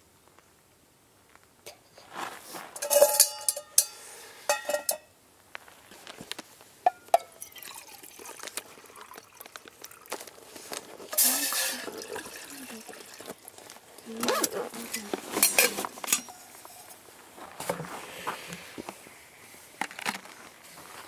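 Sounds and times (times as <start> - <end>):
metal pot clanking on stove: 2.8 - 5.0.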